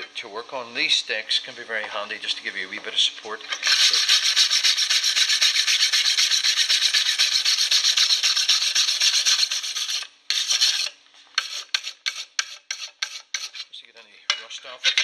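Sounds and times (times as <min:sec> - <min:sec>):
wire brush scrubbing metal: 0:03.5 - 0:15.0.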